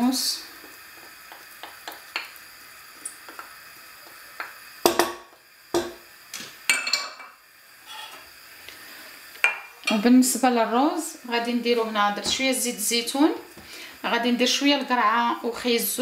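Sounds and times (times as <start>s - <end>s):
wooden spoon scraping a frying pan: 7.8s - 8.3s.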